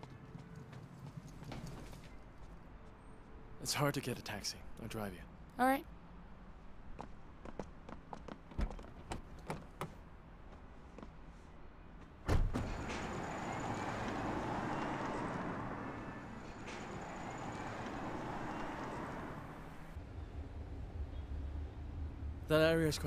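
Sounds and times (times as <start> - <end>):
car tyre and road noise: 6.4 - 20.0.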